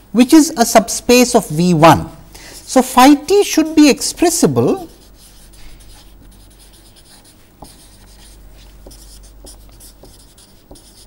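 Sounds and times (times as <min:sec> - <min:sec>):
marker scratching on paper: 0:04.7 - 0:11.0.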